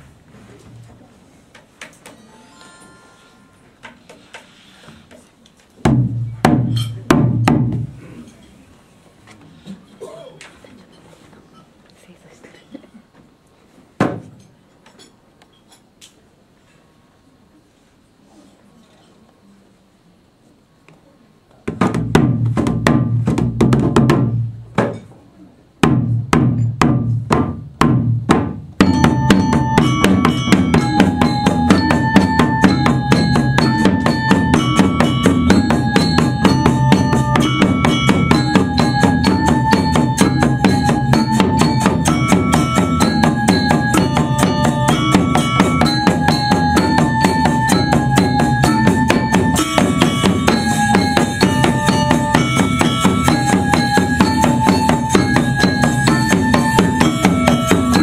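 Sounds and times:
gamelan ensemble playing: 2.1s - 3.9s, 28.8s - 58.0s
metallophone melody: 2.2s - 3.9s, 28.8s - 58.0s
hand drums: 5.8s - 8.2s, 21.7s - 25.1s, 25.8s - 58.0s
gongs: 28.8s - 58.0s.

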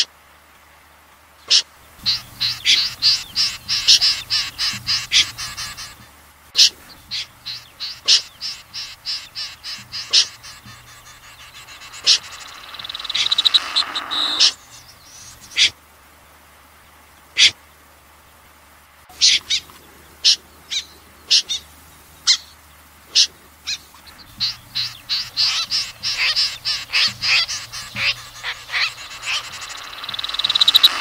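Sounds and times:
snipe calls: 1.5s - 15.8s, 17.4s - 17.6s, 19.1s - 31.0s
rattling bird trill: 7.1s - 14.9s, 24.3s - 31.0s.

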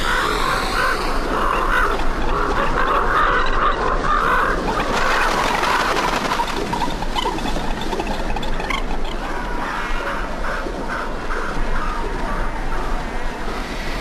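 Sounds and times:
steady hiss: 0.0s - 2.1s.

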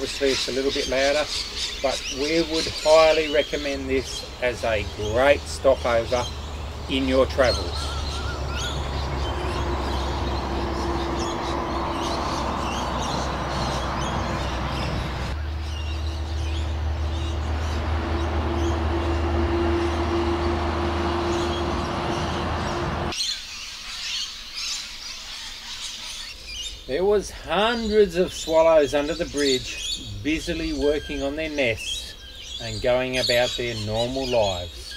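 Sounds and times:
birds chirping: 0.0s - 34.9s
truck engine drone: 2.2s - 23.2s.

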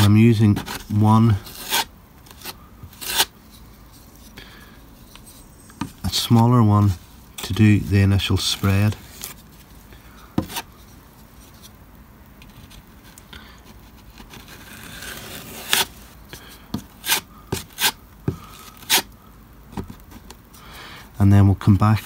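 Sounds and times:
blade scraping grout: 14.1s - 16.0s.

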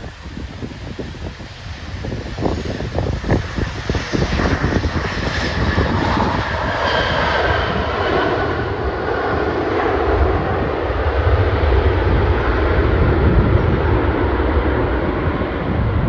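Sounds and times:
jet engine roar: 0.0s - 16.0s.

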